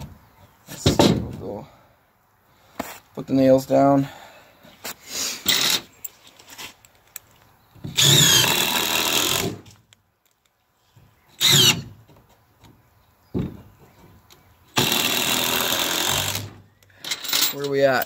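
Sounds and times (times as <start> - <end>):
cordless drill driving screws: 5.5 - 5.9, 8.0 - 9.6, 11.4 - 11.9, 14.8 - 16.6.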